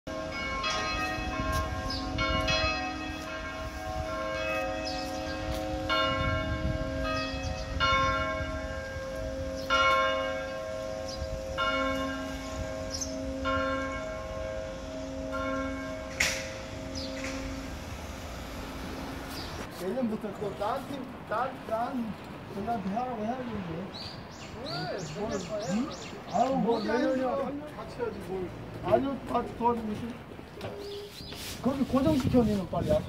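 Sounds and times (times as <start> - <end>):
bell chimes: 0.1 - 17.8.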